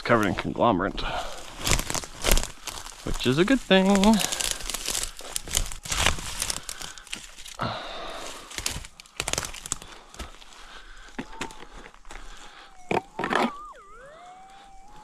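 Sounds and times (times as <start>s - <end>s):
footsteps crunching dry leaves: 0.0s - 12.7s
twigs snapping: 1.4s - 7.6s, 8.2s - 12.4s.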